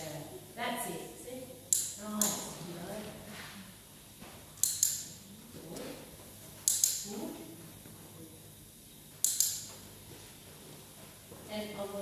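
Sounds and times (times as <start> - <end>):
dog-training clicker clicking: 4.6 - 5.1, 6.7 - 7.0, 9.2 - 9.7.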